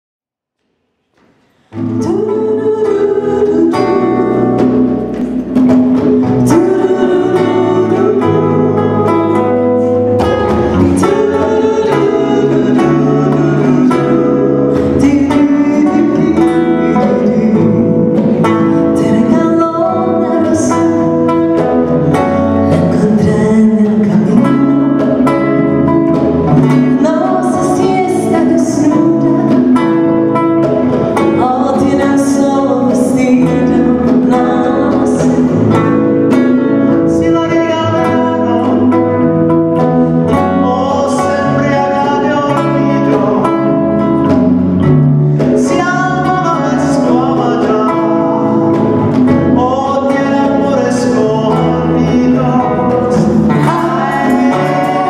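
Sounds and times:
live band playing bachata: 0:01.4 - 0:55.0
woman singing: 0:26.6 - 0:29.8, 0:31.3 - 0:38.9, 0:49.6 - 0:55.0.

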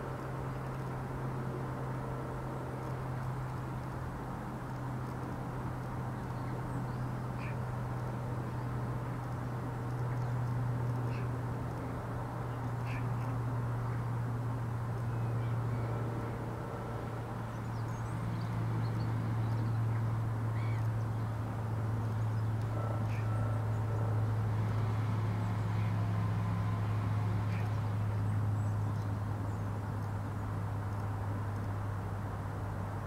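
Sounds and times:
steady low hum: 0:00.0 - 0:33.0
faint bird calls: 0:06.4 - 0:07.7, 0:11.0 - 0:11.4, 0:12.6 - 0:14.0, 0:19.9 - 0:21.0, 0:22.4 - 0:23.6.

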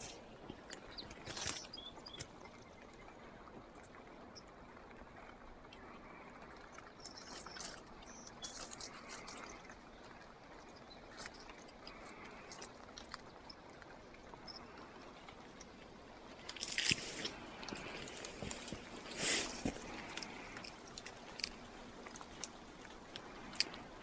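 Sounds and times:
dry twigs and leaves crackling: 0:00.0 - 0:02.7, 0:15.4 - 0:24.0
loud crunch: 0:16.5 - 0:22.5.

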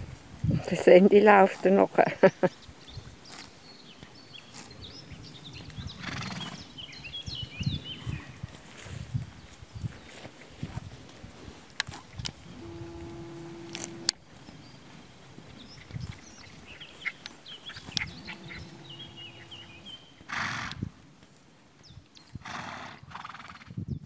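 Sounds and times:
horses tearing and chewing grass: 0:00.0 - 0:22.4
horse snorting: 0:05.9 - 0:06.6, 0:11.8 - 0:14.1, 0:17.7 - 0:20.9, 0:22.4 - 0:23.6.

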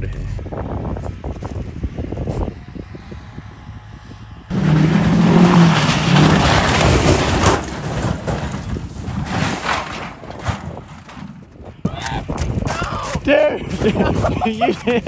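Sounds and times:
pickup truck engine revving: 0:04.5 - 0:08.4.

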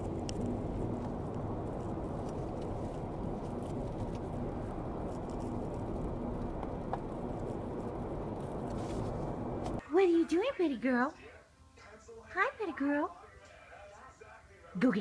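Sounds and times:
car road and engine rumble: 0:00.0 - 0:09.8
faint steady hum: 0:00.0 - 0:15.0.

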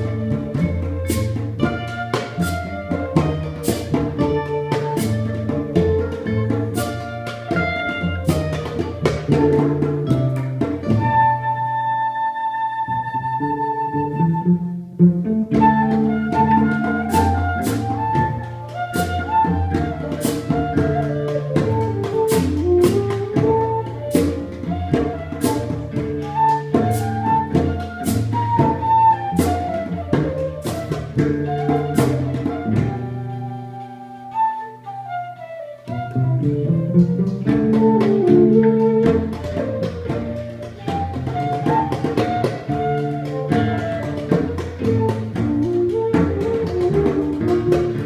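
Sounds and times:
drums struck with sticks: 0:00.0 - 0:11.0
cello: 0:00.0 - 0:48.0
wooden flute melody: 0:00.0 - 0:48.0.

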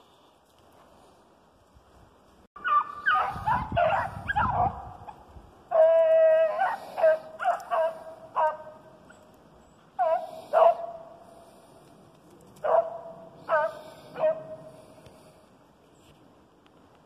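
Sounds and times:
hounds barking and baying: 0:02.6 - 0:11.4, 0:12.5 - 0:15.0.

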